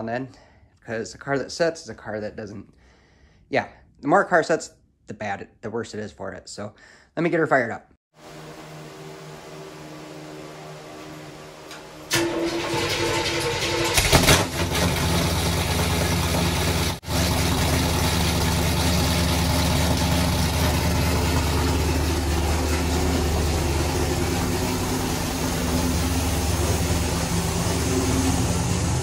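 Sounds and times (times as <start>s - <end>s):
car engine idling: 8.3s - 29.0s.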